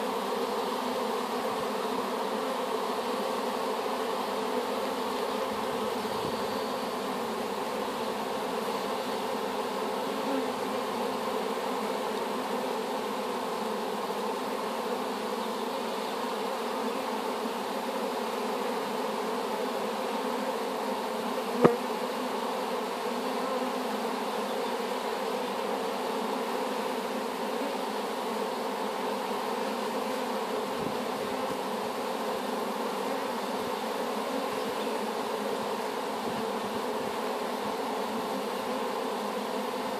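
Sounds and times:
honeybees buzzing: 0.0 - 39.9.

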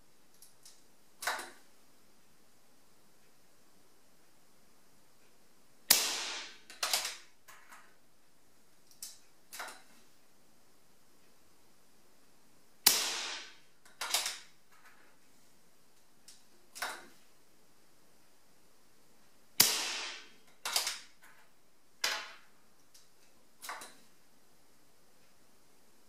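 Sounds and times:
air rifle shot: 5.9 - 7.0, 12.8 - 13.7, 19.6 - 20.4.

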